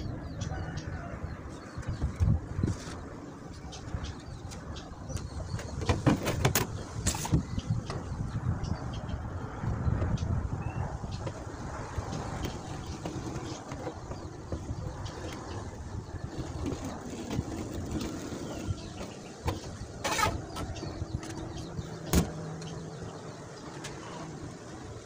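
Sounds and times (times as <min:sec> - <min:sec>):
tool scraping on tabletop: 0:16.6 - 0:20.7.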